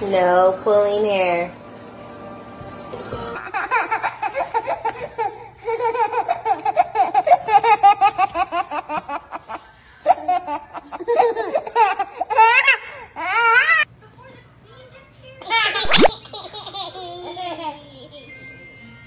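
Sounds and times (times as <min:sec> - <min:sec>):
babies laughing: 0:03.4 - 0:13.9, 0:15.5 - 0:18.1.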